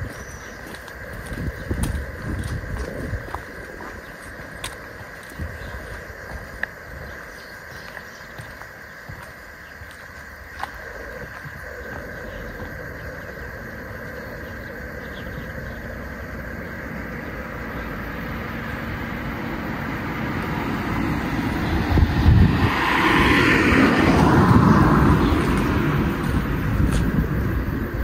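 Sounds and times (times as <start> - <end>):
car passing by: 17.4 - 27.2.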